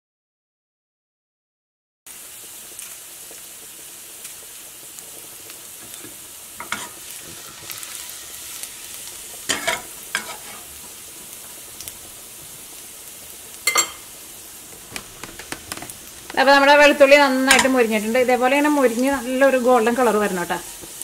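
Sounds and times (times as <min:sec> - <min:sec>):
garlic sizzling in oil: 0:02.1 - 0:21.0
spatula scraping pan: 0:05.8 - 0:11.0, 0:14.9 - 0:18.0.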